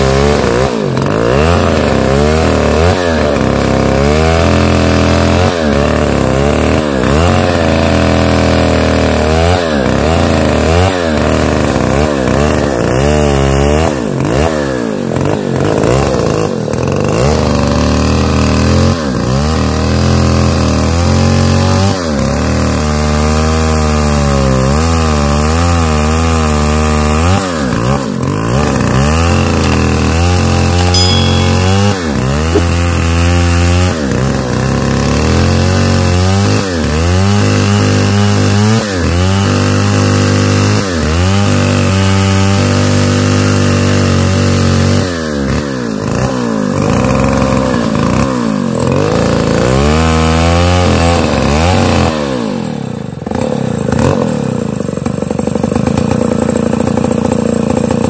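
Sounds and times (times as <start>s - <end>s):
chainsaw cutting through log: 0.0s - 58.0s.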